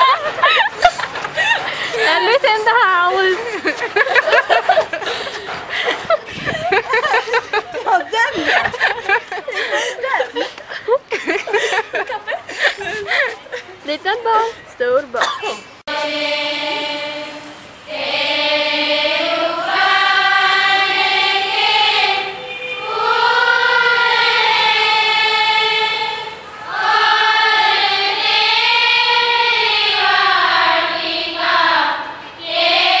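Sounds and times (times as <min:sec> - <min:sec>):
women singing unaccompanied: 0:15.9 - 0:33.0.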